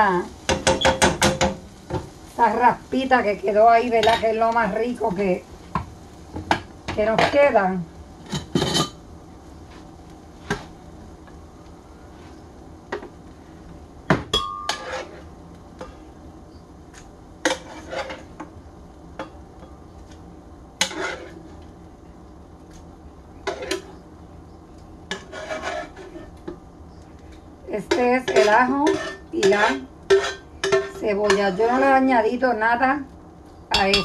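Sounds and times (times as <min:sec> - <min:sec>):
cookware knocks and clinks: 0:33.7 - 0:34.0.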